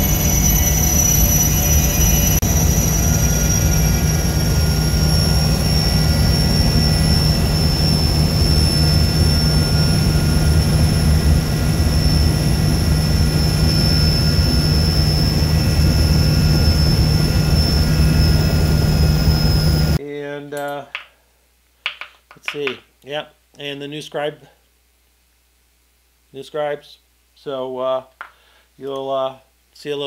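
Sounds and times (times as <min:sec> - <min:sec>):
helicopter engine and rotor drone: 0:00.0 - 0:20.0
high turbine whine: 0:00.0 - 0:20.0.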